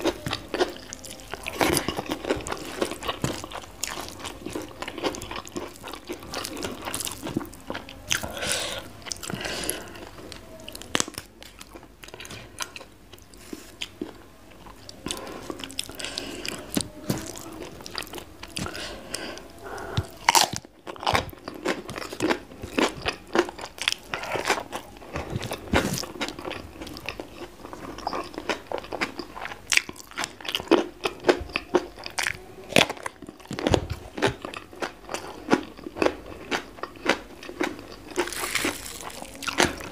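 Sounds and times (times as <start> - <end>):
crunching while eating: 0.0 - 39.9
wet chewing: 0.0 - 39.9.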